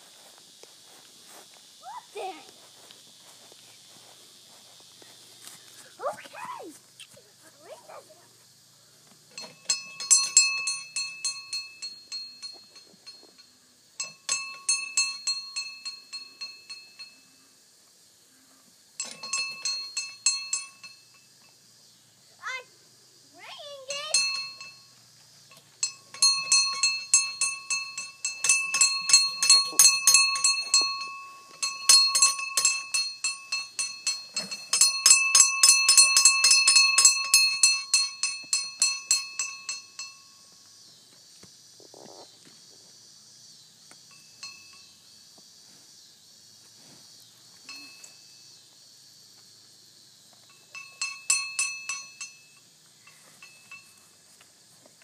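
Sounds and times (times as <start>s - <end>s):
hand bell ringing rapidly: 25.8s - 40.3s, 50.7s - 52.4s.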